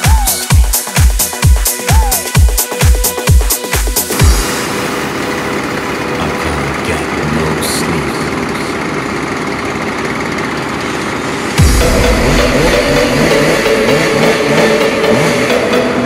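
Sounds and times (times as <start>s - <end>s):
chainsaw idling: 3.6s - 16.0s.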